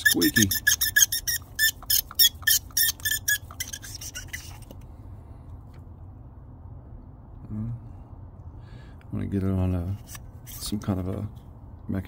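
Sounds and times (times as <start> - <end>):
scrubbing pad squeaking on metal: 0.0 - 4.7.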